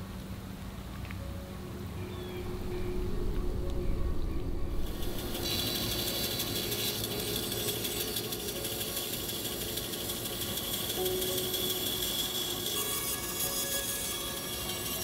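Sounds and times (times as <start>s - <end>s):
bandsaw humming: 4.8s - 15.0s.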